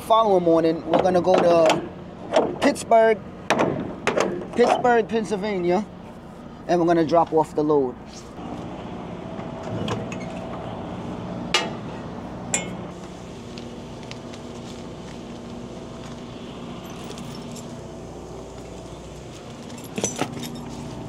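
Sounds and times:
diesel engine idling: 5.1s - 21.0s
sharp metallic clinks: 16.8s - 17.8s, 19.6s - 20.9s.

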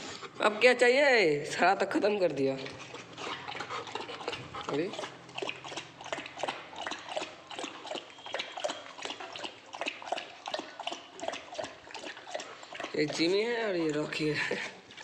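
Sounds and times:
dog lapping water: 0.0s - 15.0s.

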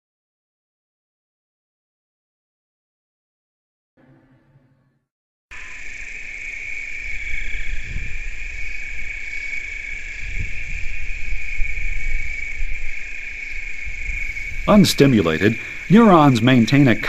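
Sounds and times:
high-pitched buzzing drone: 5.5s - 17.0s.

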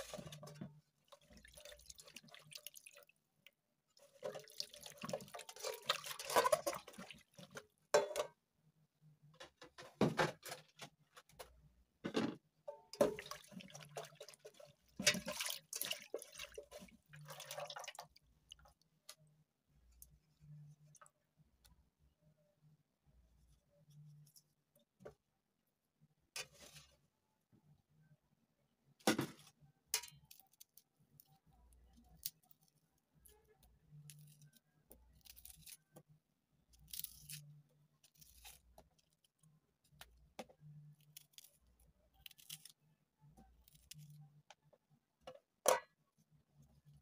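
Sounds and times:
knife scraping and cutting vegetables: 5.1s - 8.4s, 36.8s - 39.2s.

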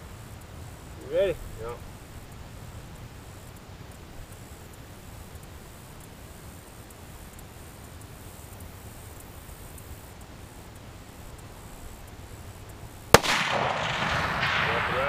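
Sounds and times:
rifle shot with echo: 13.1s - 15.0s.

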